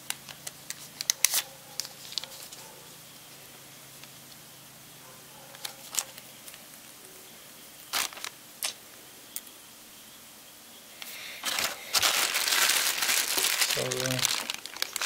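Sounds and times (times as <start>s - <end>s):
plastic wrapping crinkling: 0.3s - 2.7s, 5.5s - 6.9s, 7.9s - 8.8s, 11.4s - 15.0s.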